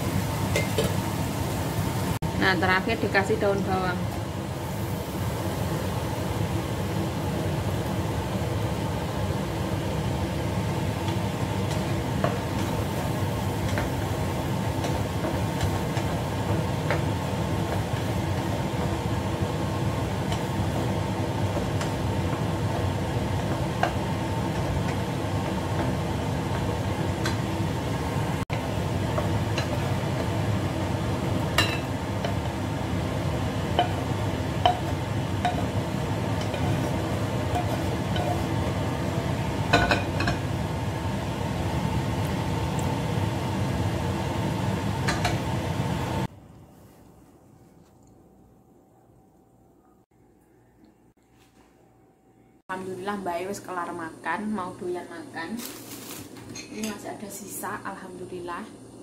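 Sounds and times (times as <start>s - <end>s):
spatula stirring food in wok: 10.5s - 40.5s
spatula knocking on pan: 33.7s - 35.8s.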